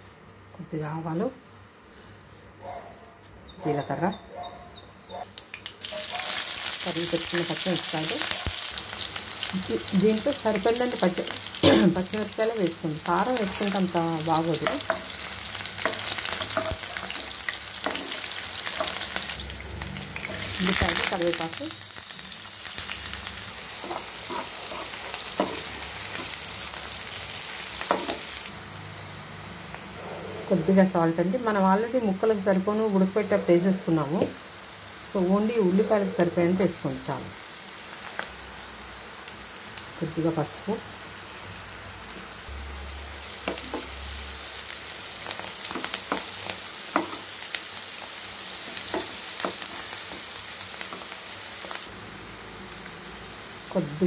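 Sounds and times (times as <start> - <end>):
onions sizzling in hot oil: 5.3 - 54.0
spoon stirring and scraping pan: 13.4 - 19.4, 23.6 - 26.6, 27.8 - 28.4, 45.2 - 47.4, 48.5 - 51.8.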